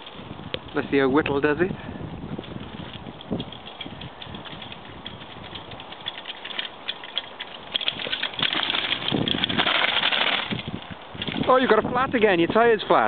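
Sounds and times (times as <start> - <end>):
mountain bike rattling over stones: 0.0 - 13.0.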